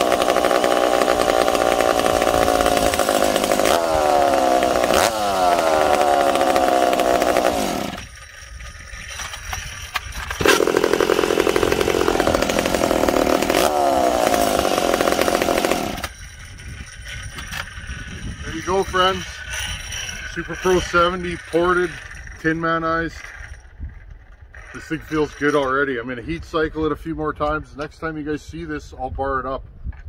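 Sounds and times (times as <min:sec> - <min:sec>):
chainsaw engine revving: 0:00.0 - 0:23.6
chainsaw pull-start: 0:00.0 - 0:25.7.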